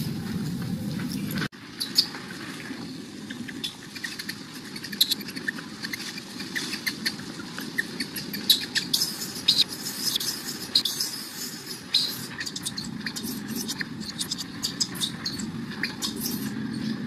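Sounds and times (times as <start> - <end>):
baby monkey squeaking cries: 3.6 - 16.8.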